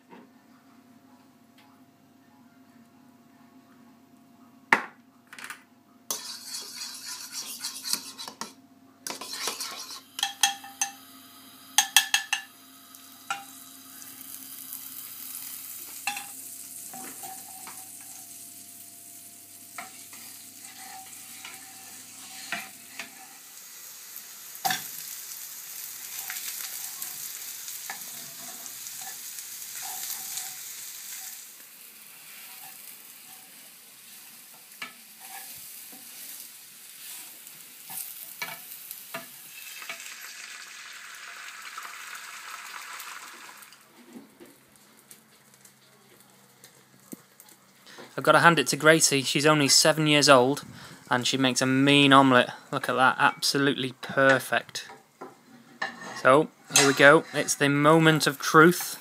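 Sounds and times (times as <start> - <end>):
food sizzling in frying pan: 6.1 - 8.5, 9.1 - 49.0, 54.1 - 59.0
fork clinking against bowl: 9.1 - 11.0.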